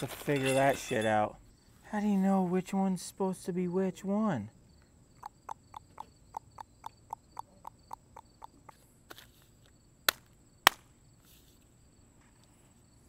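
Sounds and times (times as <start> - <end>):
high insect drone: 3.5 - 13.0
hand slapping paper on concrete: 9.1 - 10.9.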